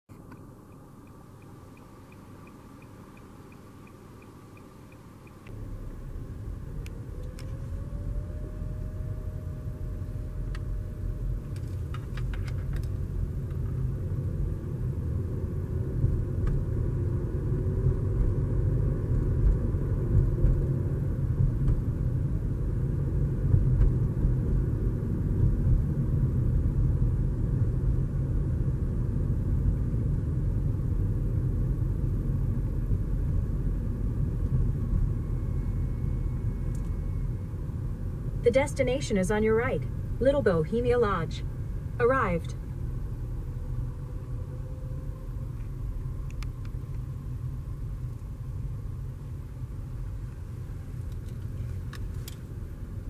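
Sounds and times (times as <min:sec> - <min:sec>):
car driving on paved road: 0:00.1 - 0:53.0.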